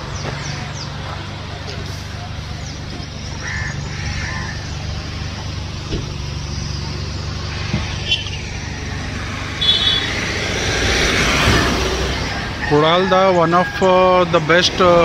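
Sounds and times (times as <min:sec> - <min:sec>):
vehicle engine running: 0:00.0 - 0:12.8.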